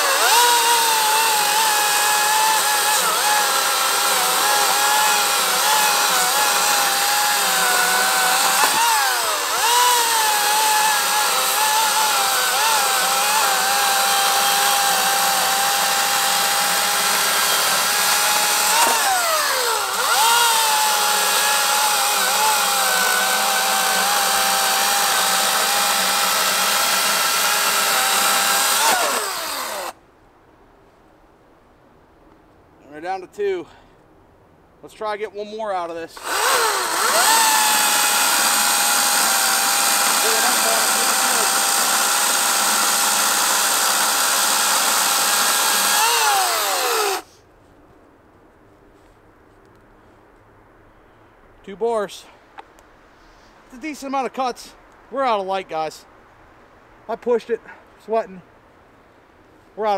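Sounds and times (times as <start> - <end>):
electric chainsaw cutting log: 0.0 - 30.0, 36.2 - 47.3.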